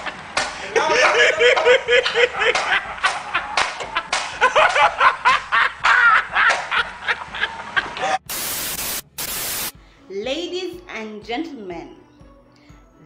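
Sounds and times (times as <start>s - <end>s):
man laughing hard: 0.6s - 8.3s
static hiss: 8.2s - 9.8s.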